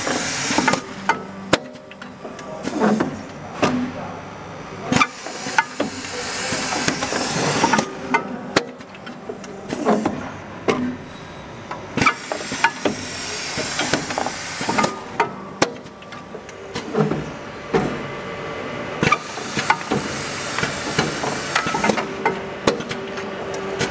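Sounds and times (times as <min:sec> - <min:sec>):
compressed air hissing: 0:05.0 - 0:07.9, 0:12.0 - 0:15.1, 0:19.0 - 0:22.0
machine clacking and knocking: 0:19.0 - 0:23.9.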